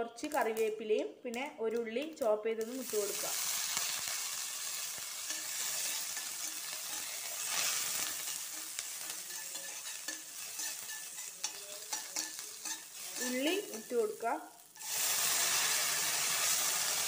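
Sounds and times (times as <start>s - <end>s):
hot oil sizzling: 2.5s - 17.0s
metal spoon stirring: 3.6s - 16.7s.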